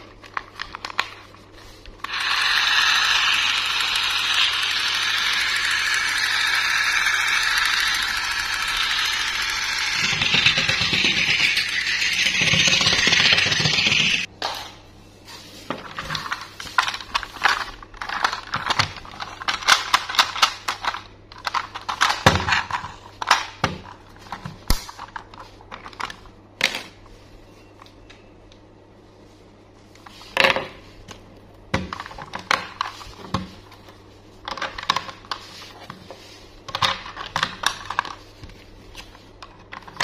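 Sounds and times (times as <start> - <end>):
loud steady noise: 2.1 - 14.3.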